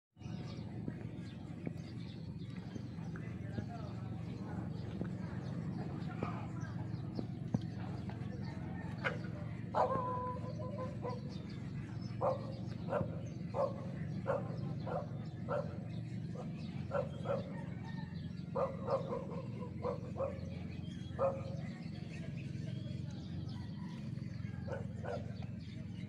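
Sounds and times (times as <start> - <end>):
animal calling: 8.6 - 21.8.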